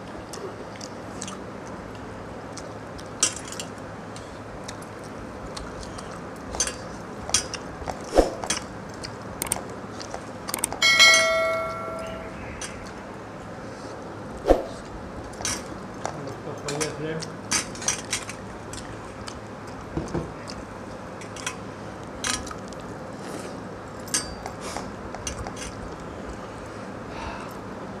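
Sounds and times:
lip smacks and chewing: 0.0 - 8.1, 8.8 - 10.8, 18.1 - 21.1, 22.4 - 23.6
bell-like metallic ring: 10.8 - 12.4.

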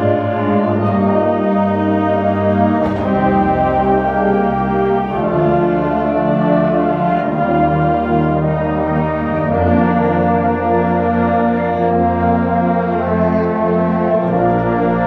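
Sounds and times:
concert band playing chords: 0.0 - 9.2.

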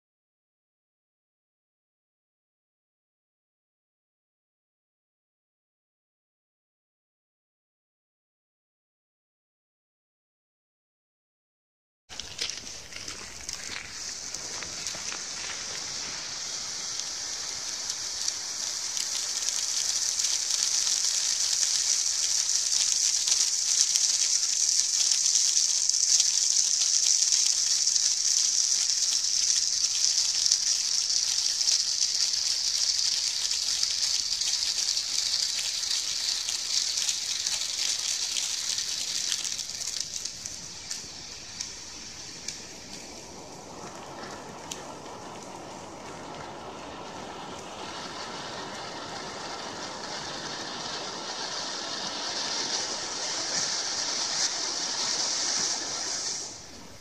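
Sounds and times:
firework crackles: 12.1 - 57.0
firework fountain hissing: 12.1 - 57.0.

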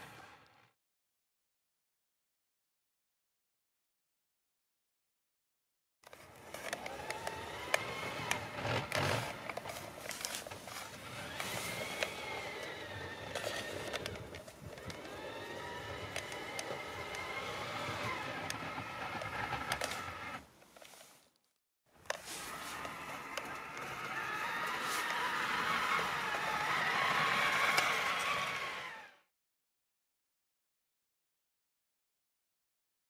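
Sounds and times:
model locomotive motor whine: 6.1 - 20.5, 22.1 - 29.3.

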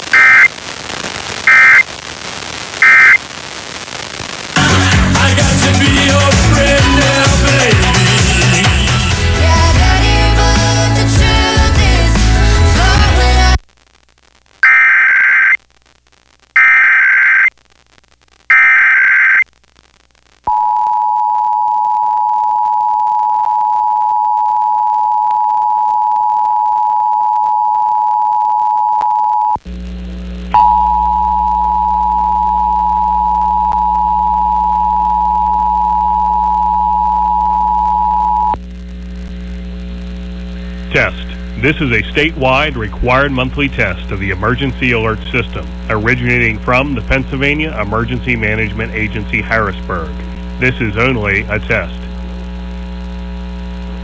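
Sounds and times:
shrill data tones: 0.0 - 4.5, 14.6 - 15.6, 16.6 - 17.6, 18.5 - 19.5
low electrical hum: 19.5 - 54.0.

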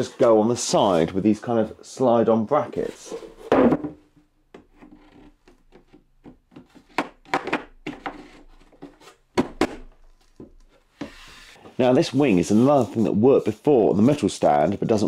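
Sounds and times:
board rubbing on board: 11.0 - 14.6.

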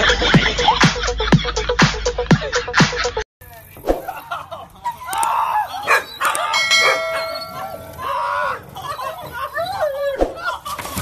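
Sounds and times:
dogs whining and barking: 4.8 - 11.0.

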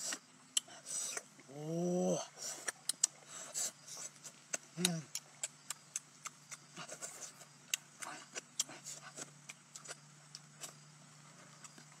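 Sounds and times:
faint steady hum: 0.0 - 12.0
chewing smacks: 2.5 - 3.2, 4.0 - 10.8.

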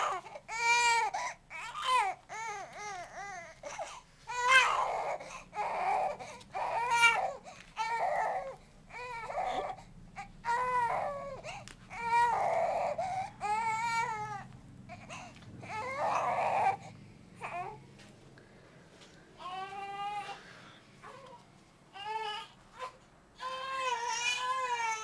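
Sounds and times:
baby crying: 0.0 - 16.8, 17.4 - 17.8, 19.4 - 20.4, 21.0 - 25.0
baby breathing: 12.8 - 13.5, 14.9 - 15.4.

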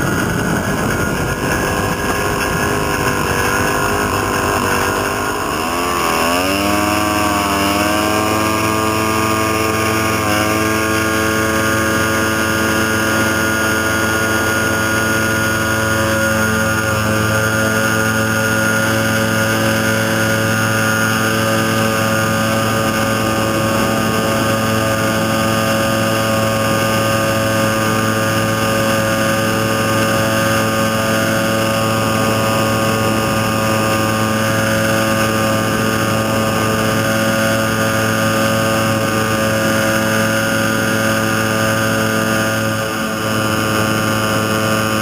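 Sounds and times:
small engine and propeller drone: 0.0 - 45.0.

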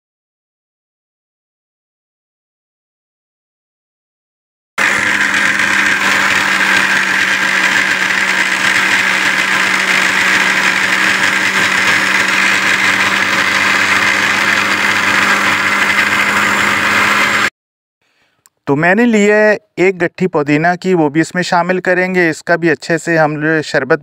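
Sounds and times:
blender motor running: 4.8 - 17.5.

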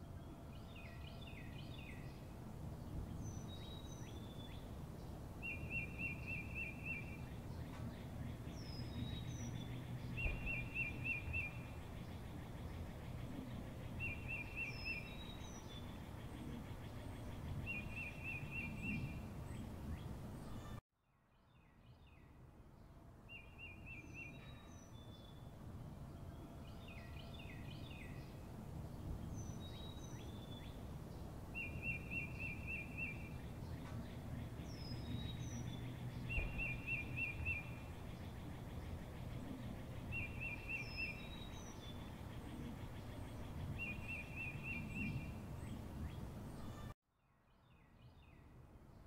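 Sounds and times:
low background noise: 0.0 - 49.0.

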